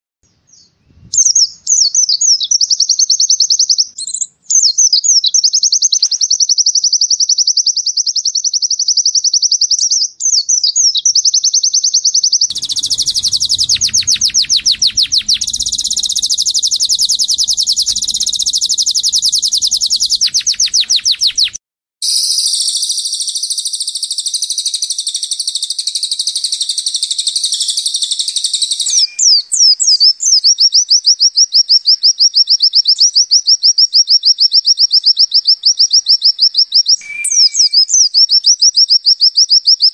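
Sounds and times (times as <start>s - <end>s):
varied songbird song: 0.2s - 39.9s
fast high bird trill: 12.5s - 23.2s.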